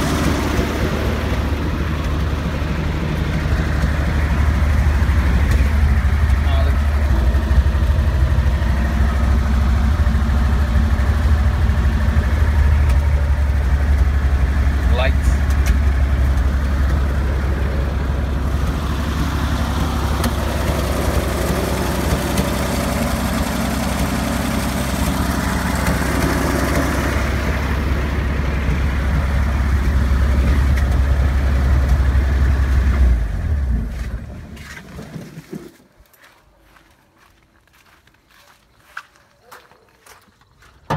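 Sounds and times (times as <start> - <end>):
jeep engine idling: 0.0 - 34.7.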